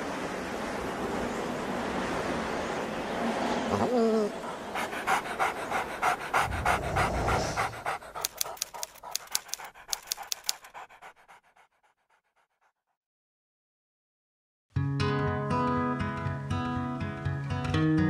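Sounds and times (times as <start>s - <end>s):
dog panting: 4.3s - 12.9s.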